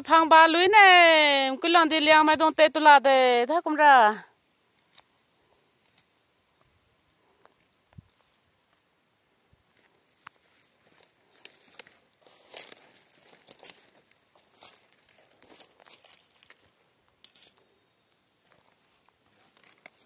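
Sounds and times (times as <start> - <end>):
leaves and mulch rustling underfoot: 9.5 - 20.0.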